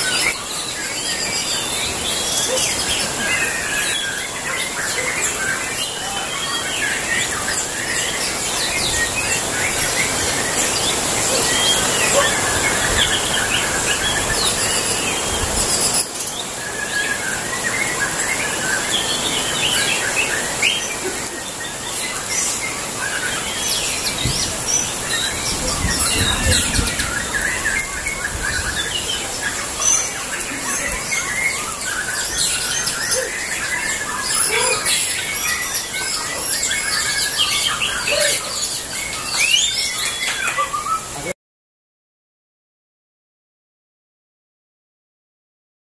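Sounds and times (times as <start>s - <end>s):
songbirds singing in chorus: 0.0s - 41.4s.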